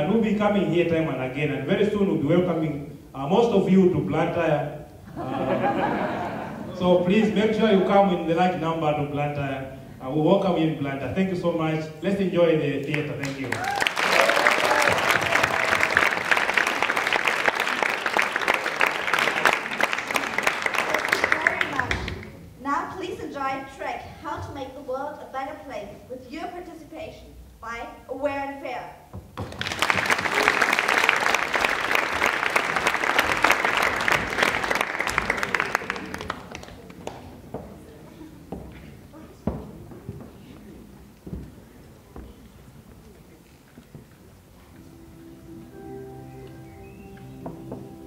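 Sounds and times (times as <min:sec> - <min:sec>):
audience applauding: 0:12.9 - 0:22.4, 0:29.4 - 0:37.4.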